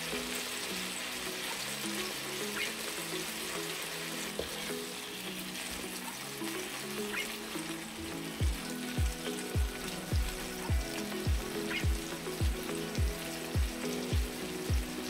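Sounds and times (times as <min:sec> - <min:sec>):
patties sizzling in oil: 0:00.0 - 0:15.0
background music with thumping beat: 0:08.4 - 0:15.0.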